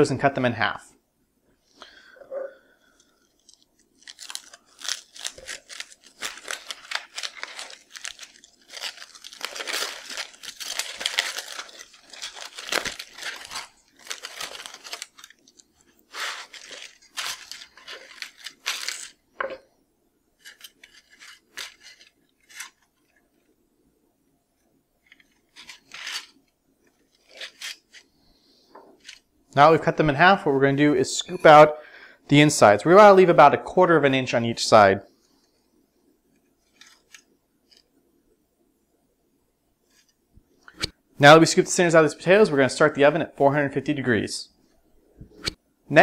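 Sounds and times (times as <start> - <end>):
aluminium foil crinkling and tearing: 3.3 - 19.2, 20.4 - 23.1, 25.0 - 28.1, 36.6 - 37.8.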